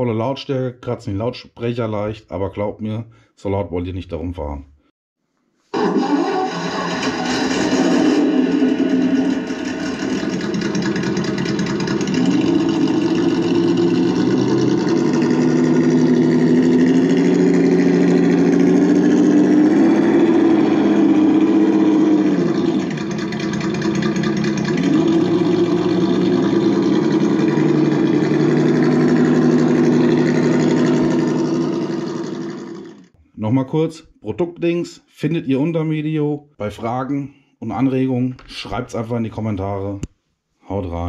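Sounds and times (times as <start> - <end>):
simulated engine through small speaker: 5.8 - 33.2.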